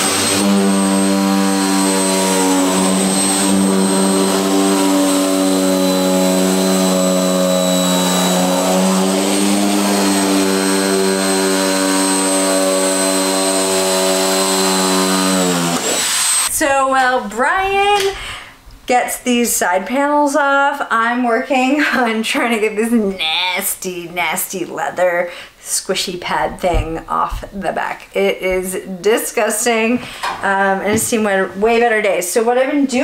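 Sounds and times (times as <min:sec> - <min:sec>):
electric shears cutting metal: 0:00.0 - 0:16.5.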